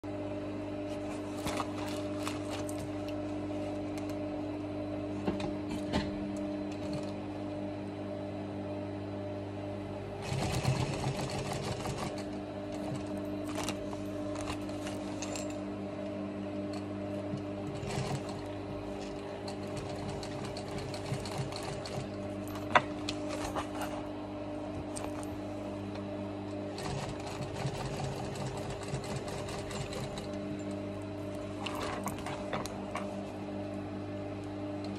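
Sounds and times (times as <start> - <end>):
sewing machine motor humming: 6.2 - 7.2, 10.2 - 33.3.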